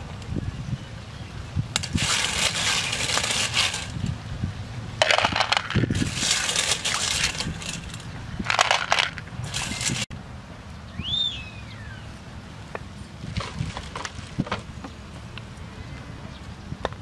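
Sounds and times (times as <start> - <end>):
shells clattering in metal bowl: 1.8 - 4.0, 5.0 - 10.1.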